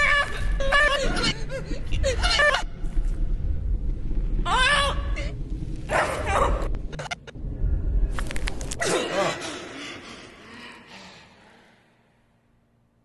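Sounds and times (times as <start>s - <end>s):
deep steady rumble: 0.3s - 8.8s.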